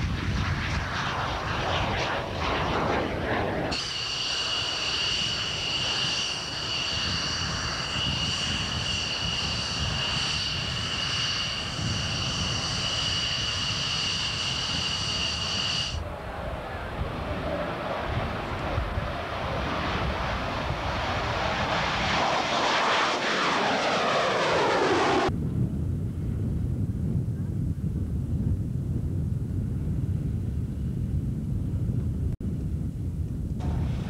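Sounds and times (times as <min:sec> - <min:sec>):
jet taking off: 0:00.0 - 0:25.4, 0:33.6 - 0:34.0
jet engine high-pitched whine: 0:00.0 - 0:26.8, 0:33.5 - 0:34.0
low wind rumble: 0:00.0 - 0:34.0
wind buffeting microphone: 0:00.0 - 0:34.0.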